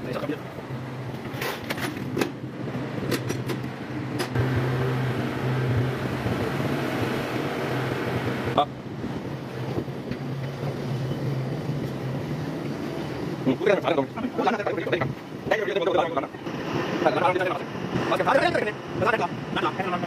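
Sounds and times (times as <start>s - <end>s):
low machine hum: 4.3s - 8.8s.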